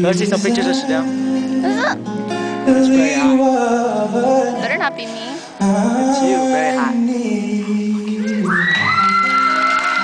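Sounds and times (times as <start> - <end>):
crowd cheering: 8.1 - 10.0
audience member screaming: 8.4 - 10.0.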